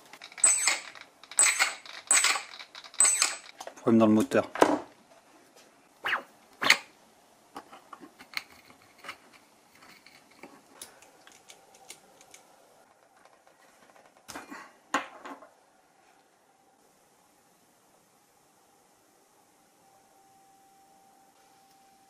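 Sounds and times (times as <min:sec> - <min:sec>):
clatter of parts: 0:00.0 - 0:04.8, 0:07.6 - 0:14.4.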